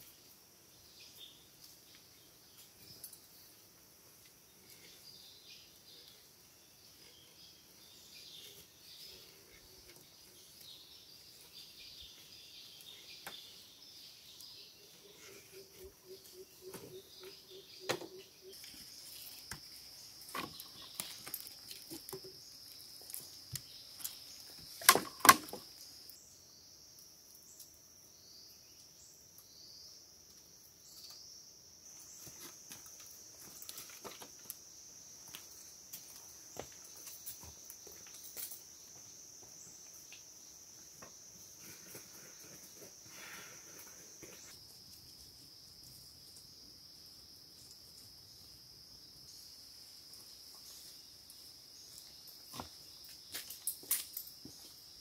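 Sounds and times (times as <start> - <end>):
insects droning: 0.0 - 55.0
bamboo poles knocking: 17.8 - 18.2, 24.8 - 25.7.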